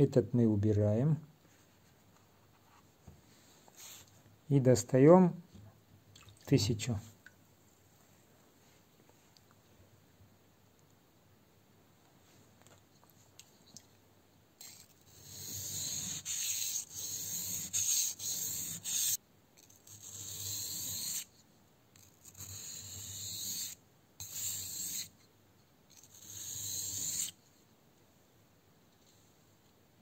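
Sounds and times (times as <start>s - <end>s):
knife scraping on whetstone: 14.6s - 19.2s, 19.8s - 21.3s, 22.2s - 25.1s, 26.0s - 27.4s.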